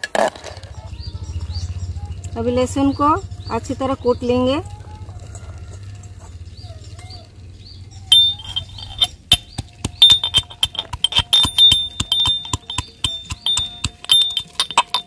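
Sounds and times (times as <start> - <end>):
metal pestle clinking in mortar: 8.1 - 15.0.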